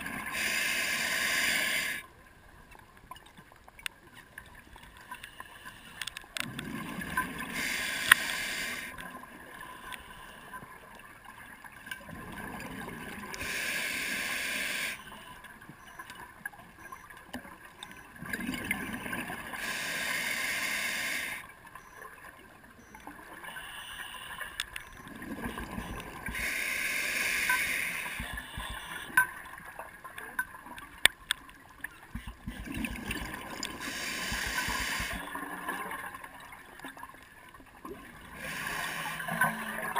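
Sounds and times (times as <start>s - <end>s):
exhaled bubbles underwater: 6.4s - 7.7s, 12.0s - 13.4s, 18.0s - 19.6s, 24.8s - 26.4s, 32.3s - 37.1s, 37.8s - 39.9s.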